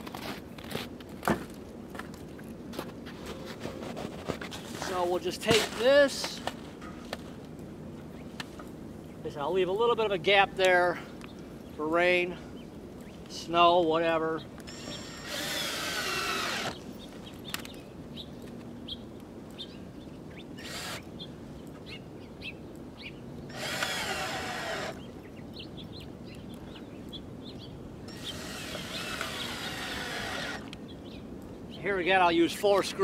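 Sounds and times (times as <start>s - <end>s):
cordless drill driving screws: 14.7s - 16.8s, 20.6s - 21.0s, 23.5s - 25.0s, 28.1s - 30.8s.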